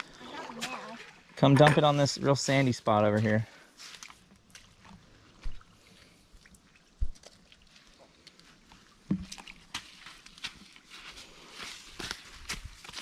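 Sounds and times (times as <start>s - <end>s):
footsteps squelching in mud: 3.2s - 13.0s.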